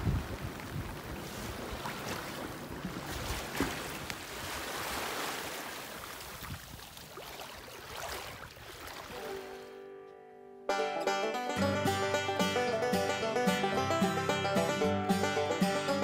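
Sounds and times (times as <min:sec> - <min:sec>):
water slaps: 0:00.0 - 0:09.4
water rushing along hull: 0:00.0 - 0:09.7.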